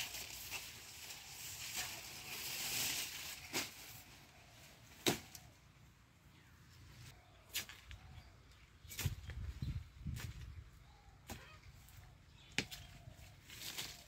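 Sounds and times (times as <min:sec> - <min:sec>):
sugarcane leaves rustling: 0:00.0 - 0:05.6, 0:12.7 - 0:14.0.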